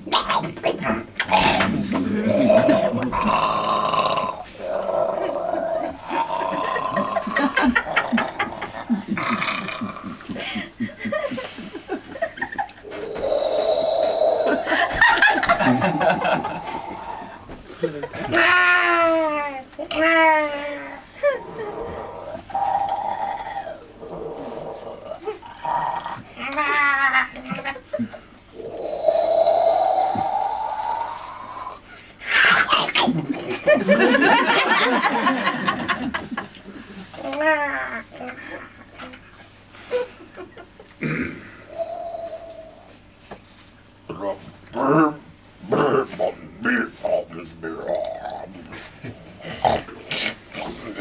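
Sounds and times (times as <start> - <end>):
man holding a vocal tone: 0.0 - 10.1, 12.8 - 17.6, 28.5 - 33.3, 41.7 - 42.9
man hissing with rising tone: 12.8 - 17.6, 28.5 - 32.5, 41.6 - 43.0
man making breathy vocal noises: 12.8 - 18.4, 28.0 - 33.5, 41.3 - 43.0, 44.2 - 51.0.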